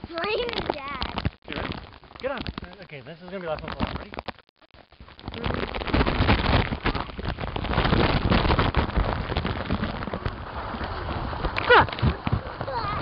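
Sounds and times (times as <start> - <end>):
plastic scraping: 0.0 - 13.0
water splashing: 4.8 - 13.0.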